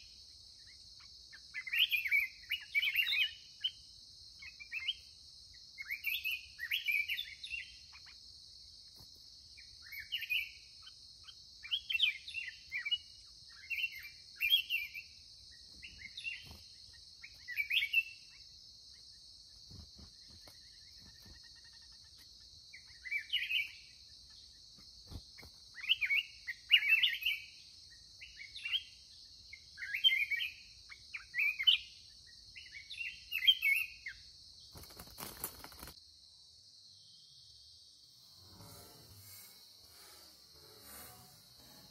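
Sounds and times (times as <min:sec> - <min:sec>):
birds singing warbled phrases: 0:00.0 - 0:05.1, 0:05.8 - 0:08.2, 0:09.6 - 0:34.2.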